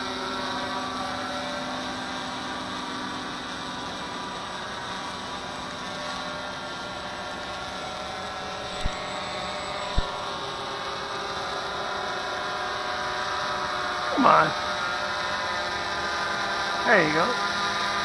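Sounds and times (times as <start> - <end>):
quadcopter motors buzzing: 0.0 - 18.0.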